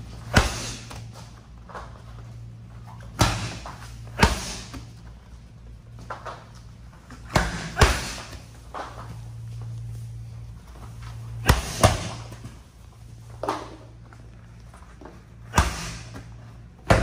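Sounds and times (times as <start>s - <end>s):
steady low hum: 0.0s - 17.0s
medicine ball echoing thuds: 0.2s - 1.1s, 3.1s - 4.9s, 7.1s - 8.5s, 11.4s - 12.4s, 15.4s - 17.0s.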